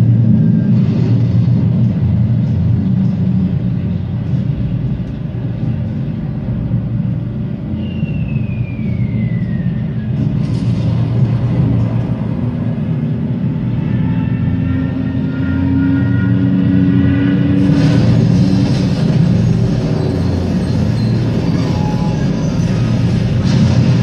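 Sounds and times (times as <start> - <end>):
bomber engines droning: 0.0 - 24.0
falling bomb whistle: 7.7 - 10.2.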